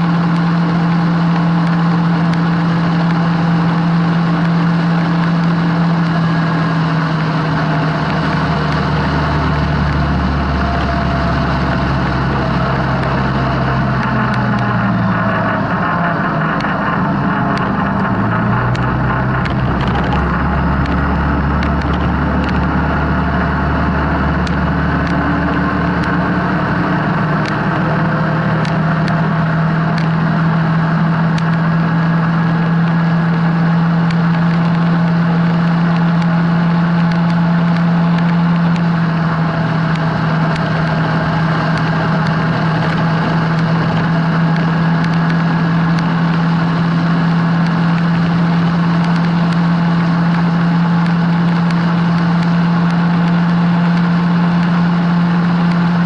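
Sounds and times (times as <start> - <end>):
atv engine running: 0.0 - 56.0
light ticks: 18.7 - 22.7, 24.4 - 26.2, 28.6 - 29.2, 29.8 - 30.2, 34.0 - 39.1, 39.8 - 56.0.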